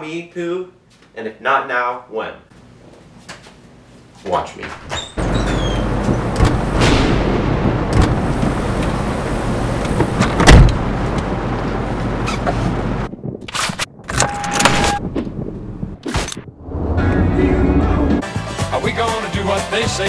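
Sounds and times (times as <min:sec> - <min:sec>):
car door shutting: 0:05.2 - 0:07.1, 0:07.9 - 0:11.0
low rumble: 0:05.2 - 0:14.0, 0:14.6 - 0:18.2
short beep: 0:14.2 - 0:15.0.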